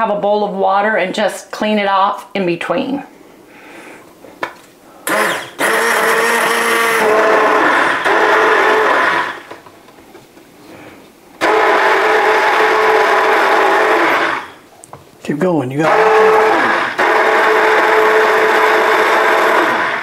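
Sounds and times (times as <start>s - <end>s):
immersion blender running: 5.0s - 9.6s, 11.4s - 14.6s, 15.8s - 20.0s.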